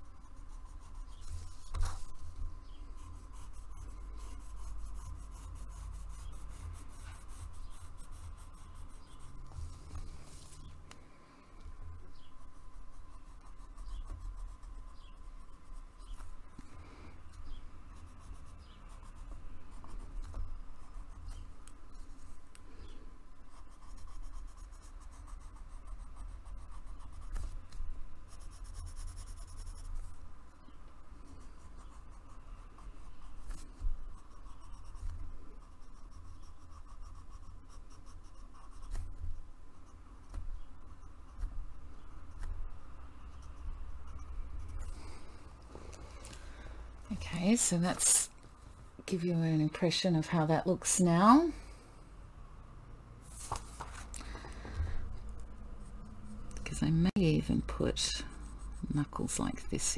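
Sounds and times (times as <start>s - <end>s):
pencil scratching on paper: 0.0s - 10.7s, 12.1s - 16.3s, 17.4s - 22.4s, 23.4s - 30.6s, 31.2s - 45.4s, 56.7s - 59.9s.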